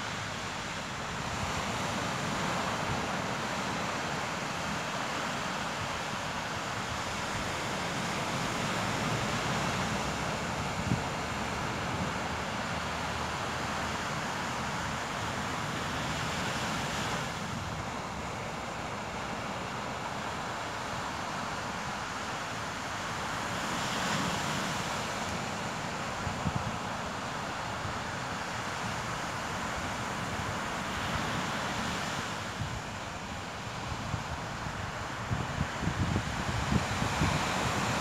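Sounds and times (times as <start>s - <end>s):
waves washing up beach: 0.0s - 38.0s
wind rumbling on microphone: 28.8s - 38.0s.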